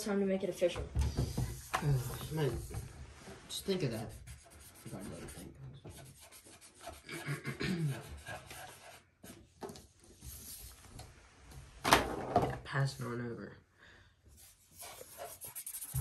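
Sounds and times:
marker scratching on paper: 3.5s - 9.4s, 14.4s - 16.0s.

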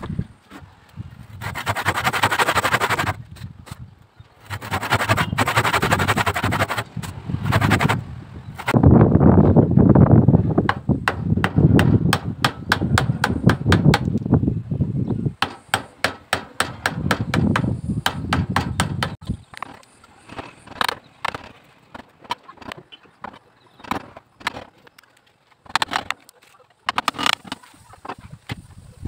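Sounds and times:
hammer striking chisel into wood: 10.7s - 14.1s, 15.4s - 19.2s.

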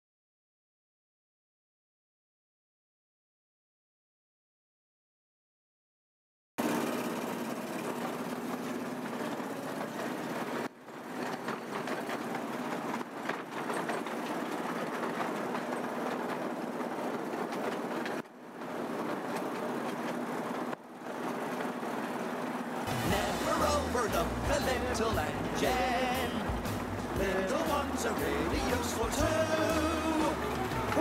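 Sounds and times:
train wheels rumbling on rail: 6.6s - 31.0s
low motor hum: 22.0s - 31.0s.

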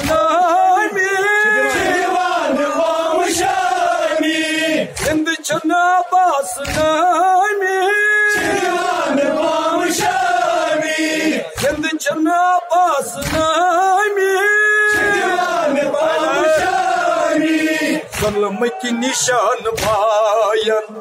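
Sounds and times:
man singing a lament: 0.0s - 3.4s, 4.7s - 8.7s, 11.4s - 17.0s, 18.0s - 21.0s.

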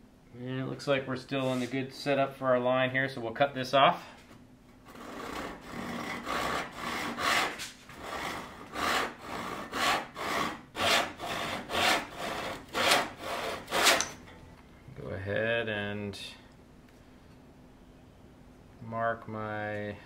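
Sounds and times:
handsaw cutting wood: 4.9s - 14.2s.

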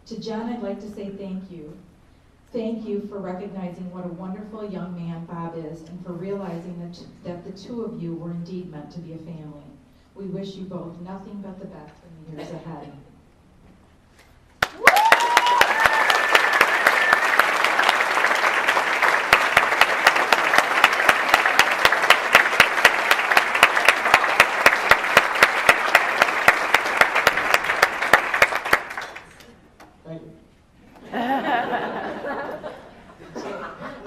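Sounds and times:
audience applauding: 14.6s - 29.5s.

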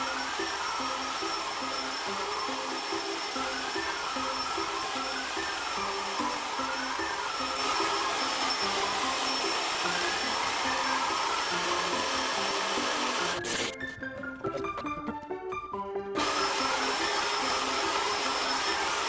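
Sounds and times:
bit cutting into wood: 0.0s - 13.8s
router motor whine: 0.0s - 13.8s, 16.2s - 19.0s.

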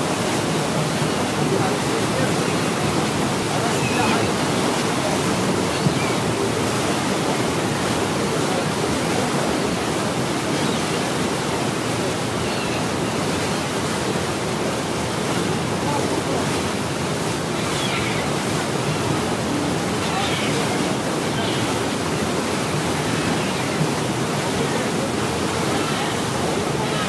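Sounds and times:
rushing water of boat wake: 0.0s - 27.0s
faint gull calls: 3.5s - 4.5s, 5.2s - 6.8s, 12.2s - 13.2s, 17.4s - 22.0s, 22.9s - 24.1s, 25.6s - 27.0s.

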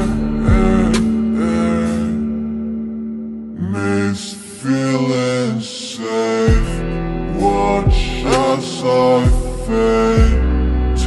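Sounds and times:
deep bass hits: 0.0s - 1.6s
sustained melodic notes: 0.0s - 4.1s.

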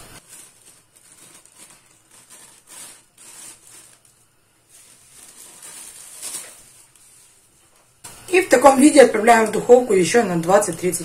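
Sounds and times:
plastic film crinkling: 0.0s - 8.0s.

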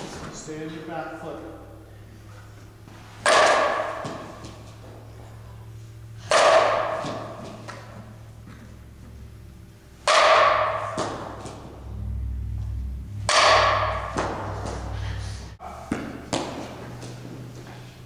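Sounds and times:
bat hitting softball: 3.2s - 4.7s, 6.2s - 8.6s, 10.0s - 15.1s, 15.9s - 16.9s.

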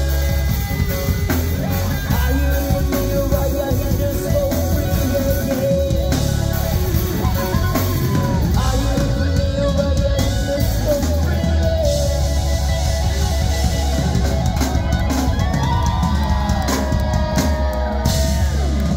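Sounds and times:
bass guitar: 0.0s - 18.9s
distorted electric guitars: 0.0s - 18.9s
drum kit: 0.0s - 18.9s
keyboards: 0.0s - 18.9s.

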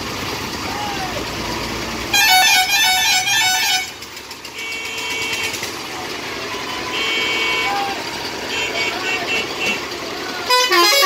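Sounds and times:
idling traffic rumble: 0.0s - 11.0s
musical vehicle horn tune: 2.1s - 5.9s, 6.6s - 11.0s
steady horn honk: 2.1s - 5.9s, 6.8s - 11.0s.

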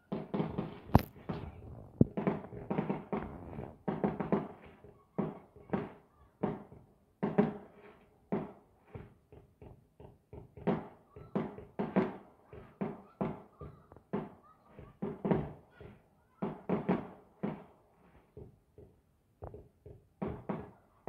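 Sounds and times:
fireworks bursting: 0.1s - 4.7s.

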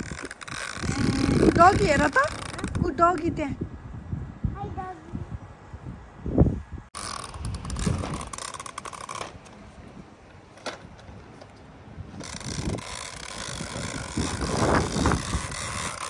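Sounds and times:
toy lawn mower clicking and rattling: 0.0s - 3.3s, 7.0s - 9.6s, 12.2s - 16.0s.

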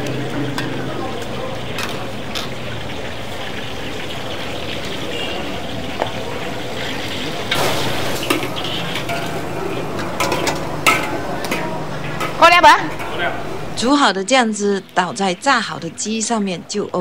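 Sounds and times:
sauce sizzling in a wok: 0.0s - 16.7s
stirring in a wok: 6.4s - 13.8s
metal utensil clanks: 7.4s - 13.4s.

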